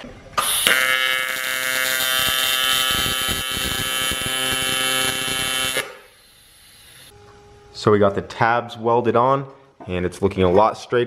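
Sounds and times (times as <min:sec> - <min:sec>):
welding arc buzzing: 0:00.4 - 0:07.1.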